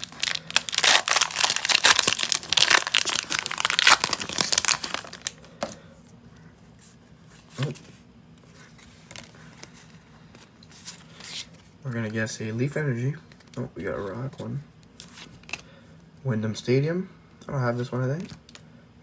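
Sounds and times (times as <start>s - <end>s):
foil wrapper crinkling and tearing: 0.0s - 5.4s.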